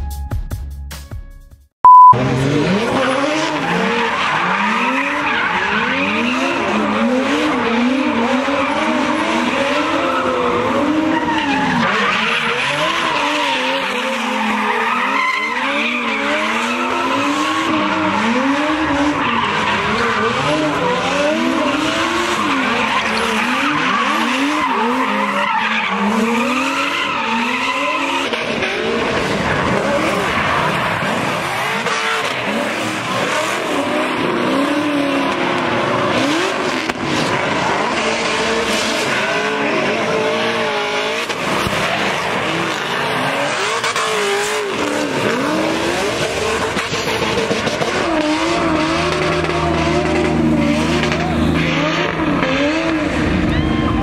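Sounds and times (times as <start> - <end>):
car engine revving hard: 2.2 - 53.5
tyres skidding: 2.2 - 54.0.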